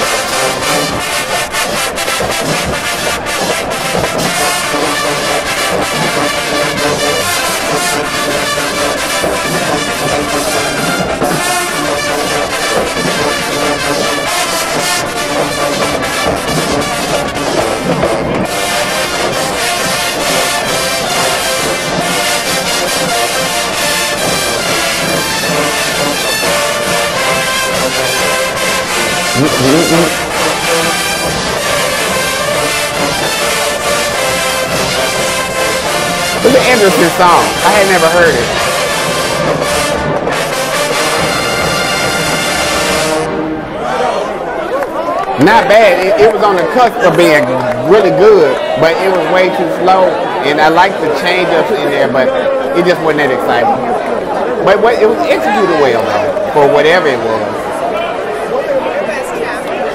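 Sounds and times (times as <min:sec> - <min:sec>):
trombone slide: 0:00.0 - 0:44.5
marching band playing: 0:00.0 - 0:59.9.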